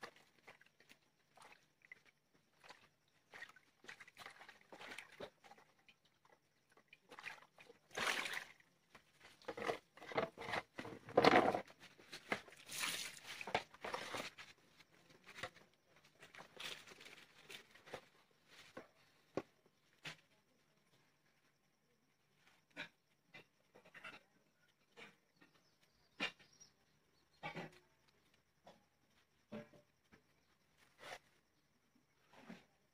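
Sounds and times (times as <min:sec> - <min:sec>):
hands splashing water in basin: 0:00.0 - 0:06.0, 0:06.8 - 0:09.1, 0:12.3 - 0:14.2
plastic bowls being handled: 0:00.0 - 0:20.3.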